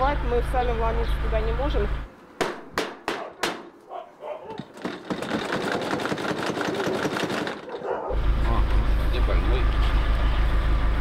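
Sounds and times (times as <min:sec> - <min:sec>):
knocks on sheet-metal gate: 0:02.4 - 0:03.8.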